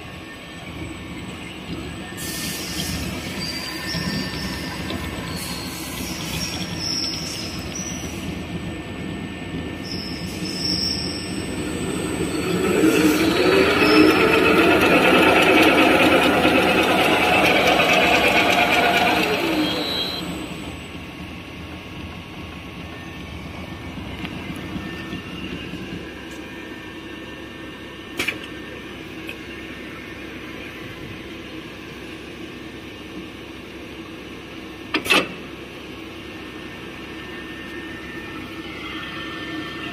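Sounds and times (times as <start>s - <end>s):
machine steady hum: 0.0s - 34.9s
machine drive whining: 0.5s - 21.7s.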